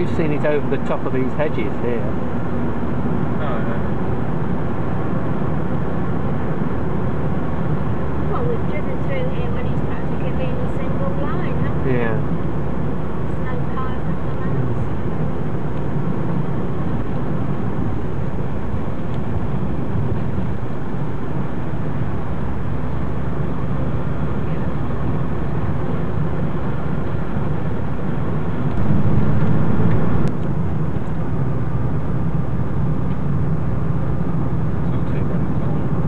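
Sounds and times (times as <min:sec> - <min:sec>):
car engine and tyre rumble: 0:00.0 - 0:36.0.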